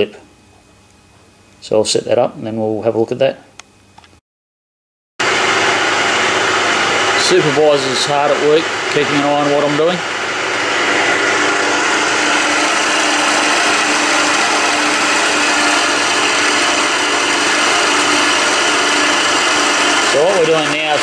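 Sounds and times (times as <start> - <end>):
milling machine cutting with whine: 5.2 - 21.0.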